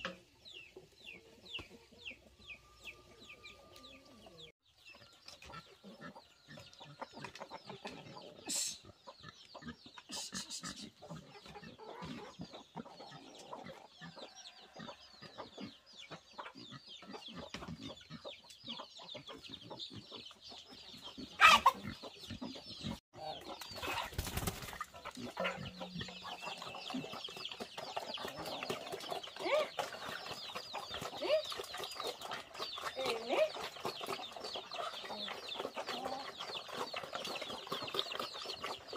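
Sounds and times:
chickens clucking: 0:00.0 - 0:38.9
chicks peeping: 0:00.3 - 0:38.9.

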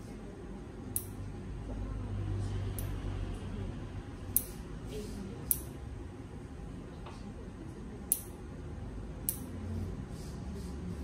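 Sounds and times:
toenail clippers clicking: 0:00.9 - 0:01.2, 0:09.2 - 0:09.5.

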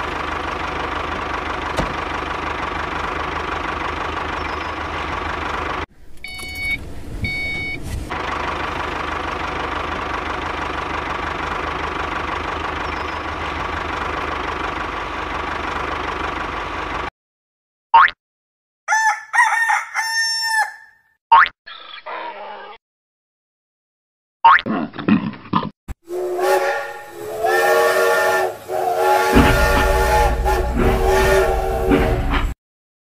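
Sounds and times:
tractor engine idling: 0:00.0 - 0:07.4, 0:08.1 - 0:17.1
short beeps: 0:06.2 - 0:07.8.

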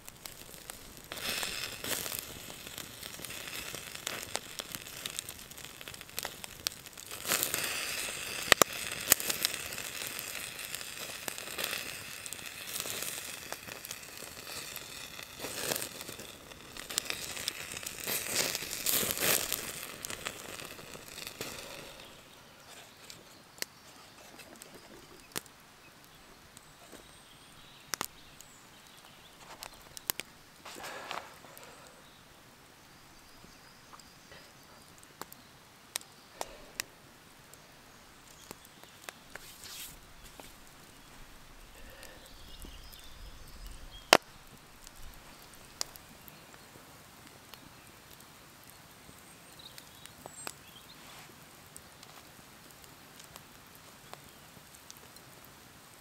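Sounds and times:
wood fire crackling and popping: 0:00.0 - 0:56.0
burger sizzling and hissing: 0:00.2 - 0:06.4, 0:07.1 - 0:22.3.

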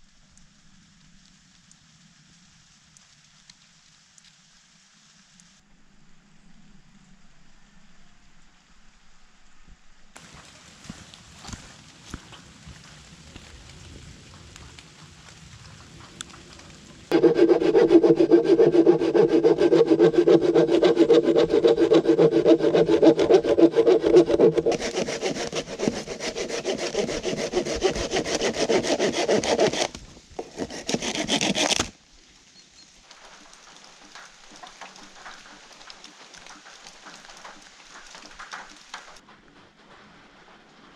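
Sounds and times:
hand saw cutting wood: 0:17.1 - 0:31.9.

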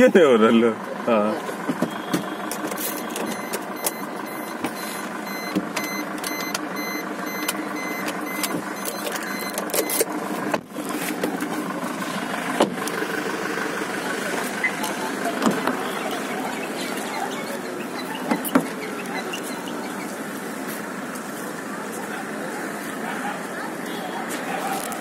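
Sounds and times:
car engine running at low revs: 0:00.0 - 0:25.0
high electronic beeping: 0:01.9 - 0:10.1, 0:14.2 - 0:20.6.

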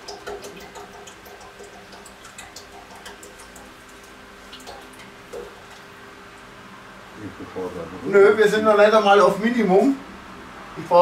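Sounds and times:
oil trickling and dripping: 0:00.0 - 0:06.6.

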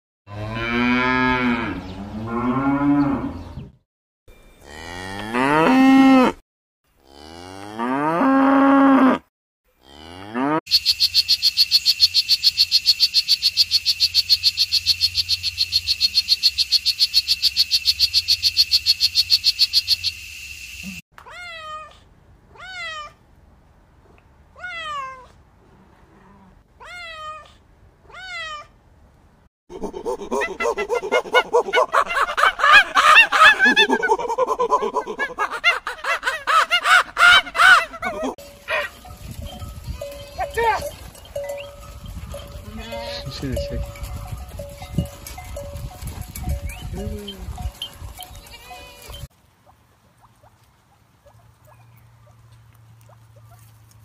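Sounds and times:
cattle mooing: 0:00.3 - 0:03.4, 0:09.8 - 0:10.6
frog chirping rapidly: 0:10.7 - 0:21.0.

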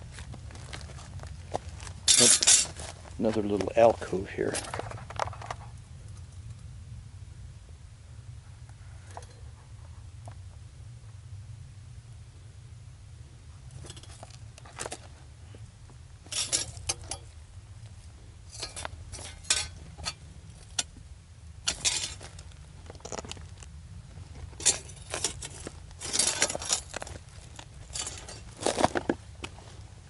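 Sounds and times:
footsteps on gravel: 0:00.0 - 0:05.1, 0:21.7 - 0:29.8
stones clinking: 0:02.1 - 0:02.8.

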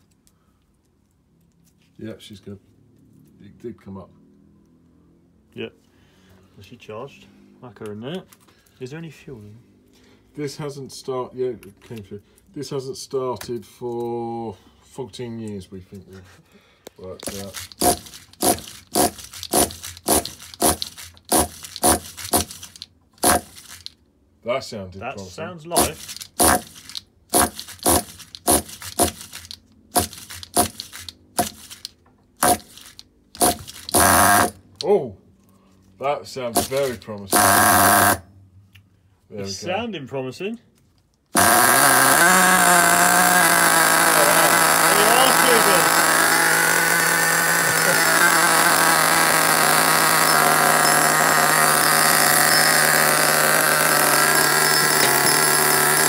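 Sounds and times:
engine turning over: 0:17.2 - 0:24.0, 0:25.8 - 0:34.8, 0:36.6 - 0:38.2, 0:41.4 - 0:56.0.

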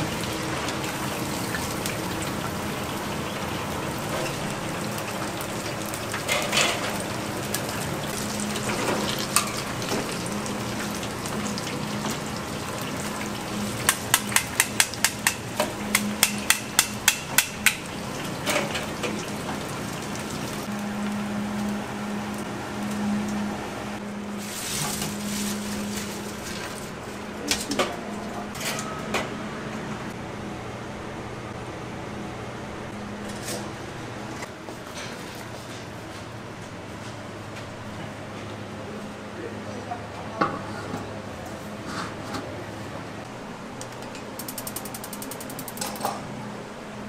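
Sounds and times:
frying hiss: 0:00.0 - 0:22.5.

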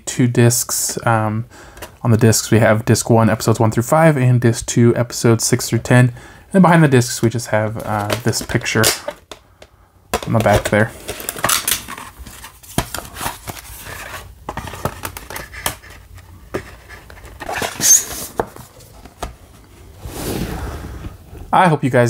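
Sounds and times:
cardboard slipcover swishing: 0:19.6 - 0:21.3.

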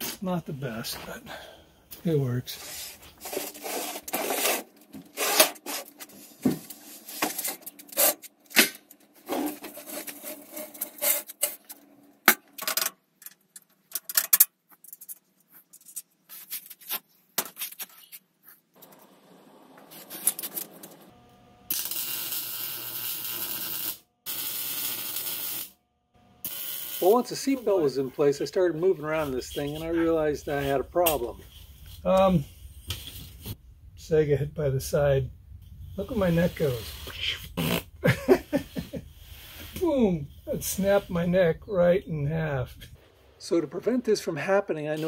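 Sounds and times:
welder arc crackling: 0:21.7 - 0:25.8, 0:26.4 - 0:33.6.

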